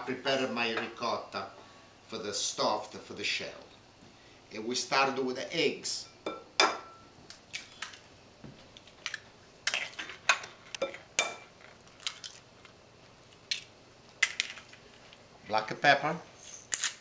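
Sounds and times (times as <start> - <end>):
eggshells cracking: 11.6 - 14.8.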